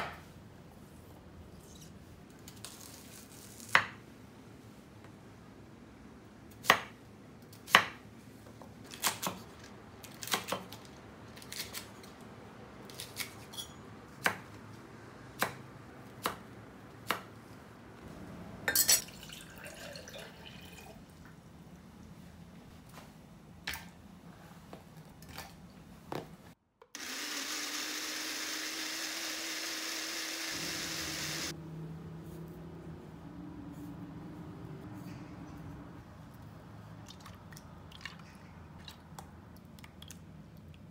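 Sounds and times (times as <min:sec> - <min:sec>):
water poured into blender jug: 0:19.0 - 0:21.0
blender whirring: 0:27.0 - 0:31.5.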